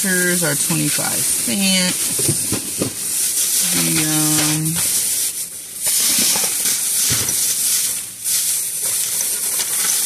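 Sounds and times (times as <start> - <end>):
plastic bag rustling: 0.0 - 10.0.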